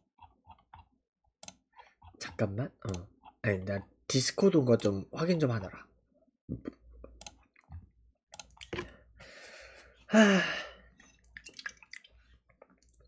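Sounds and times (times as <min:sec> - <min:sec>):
man exhaling: 0:09.3 - 0:10.8
man sighing: 0:09.3 - 0:10.9.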